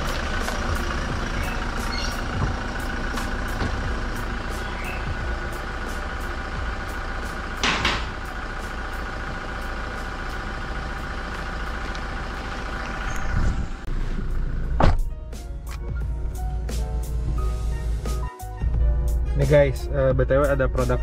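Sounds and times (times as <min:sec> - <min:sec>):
car engine idling: 0:00.0 - 0:21.0
car door slamming: 0:03.2 - 0:04.0, 0:07.6 - 0:08.2, 0:14.7 - 0:15.1.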